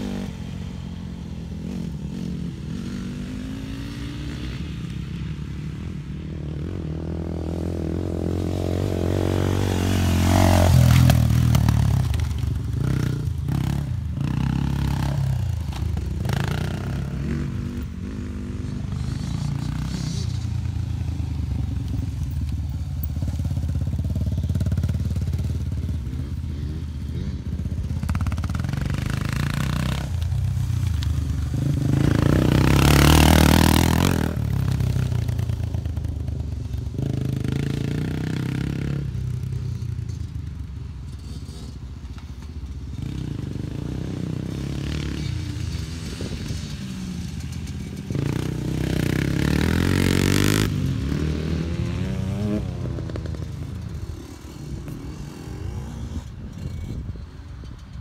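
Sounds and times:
dirt bike engine revving: 6.7s - 21.6s, 23.2s - 35.6s, 42.9s - 57.0s.

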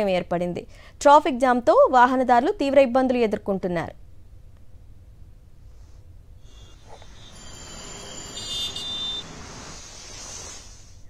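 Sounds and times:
road traffic rumble: 5.4s - 11.0s
short high-pitched tone: 6.5s - 9.8s.

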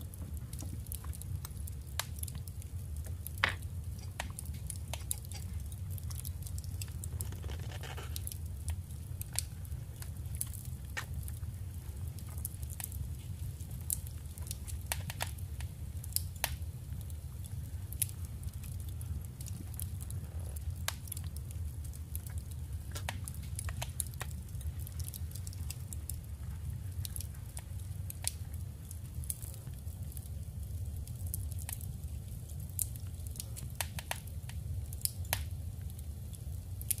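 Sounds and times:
steady low hum: 0.0s - 37.0s
paper clicks and rustles: 7.2s - 8.3s.

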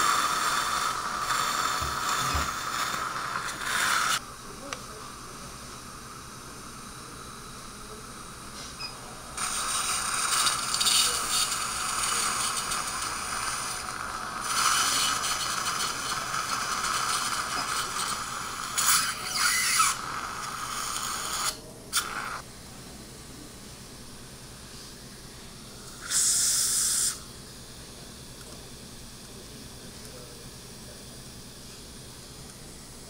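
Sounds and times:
dental handpiece whirring: 0.0s - 4.2s, 9.4s - 22.4s, 25.8s - 27.3s.

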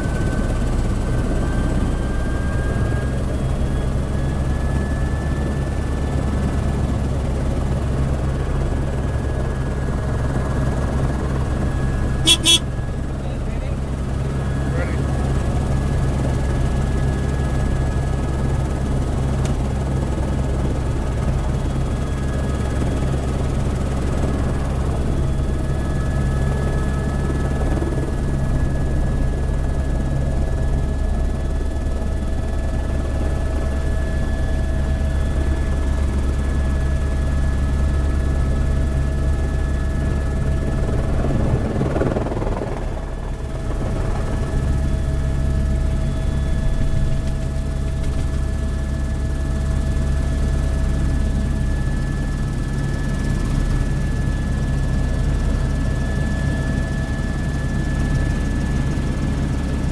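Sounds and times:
helicopter rotor and engine drone: 0.0s - 59.9s.

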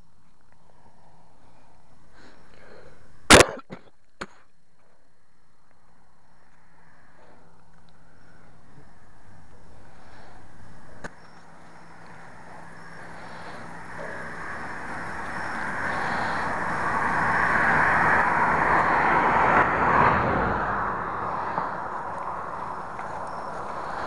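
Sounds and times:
vehicle passing by: 11.4s - 24.0s.

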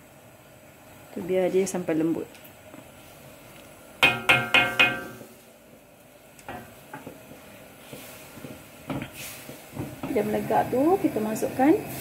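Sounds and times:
spatula knocking on metal wok: 4.0s - 5.3s.

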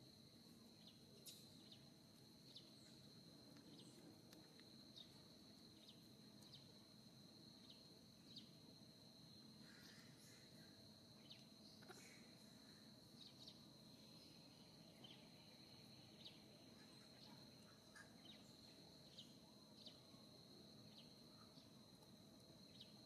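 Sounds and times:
short insect chirps: 0.7s - 6.8s.

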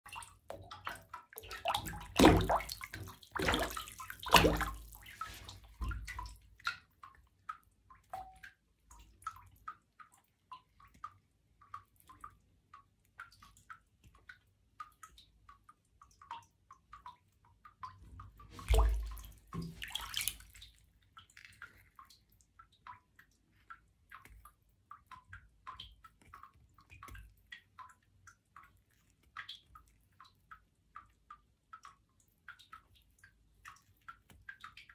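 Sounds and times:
feet splashing in bathtub water: 0.0s - 12.3s, 17.7s - 30.5s
water dripping: 0.0s - 34.9s.

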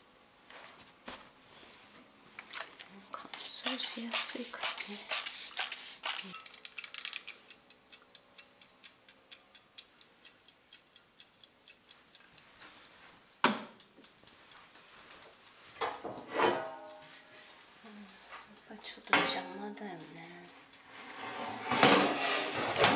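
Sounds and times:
kitchen timer ticking: 3.4s - 16.0s, 16.6s - 21.6s
timer dial clicks: 7.4s - 15.6s, 18.5s - 21.1s.

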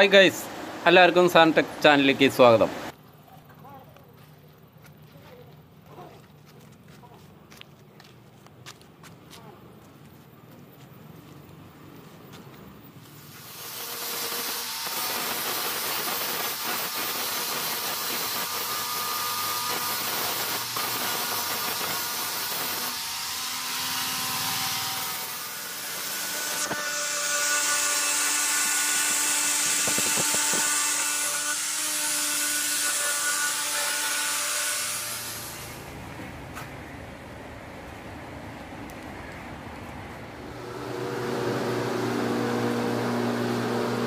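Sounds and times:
power grinder grinding metal: 13.2s - 35.9s.

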